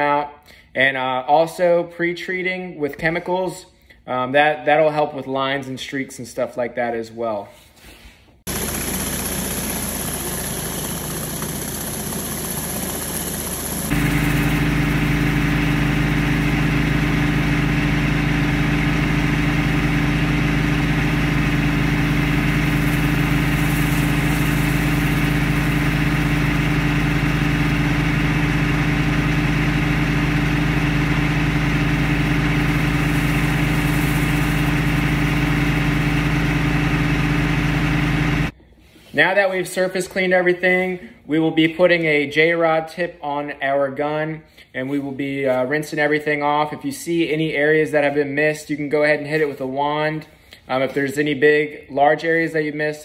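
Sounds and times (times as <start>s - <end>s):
pressure washer engine running: 8.5s - 38.5s.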